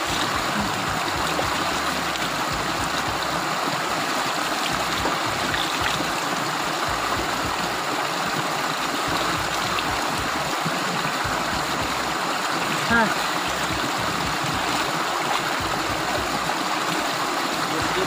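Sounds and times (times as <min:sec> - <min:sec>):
small waterfall rushing: 0:00.0 - 0:18.0.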